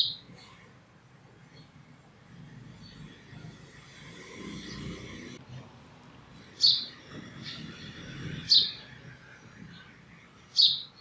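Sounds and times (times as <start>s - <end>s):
sparrow chirping: 0.0s - 0.3s, 6.4s - 8.9s, 10.4s - 11.0s.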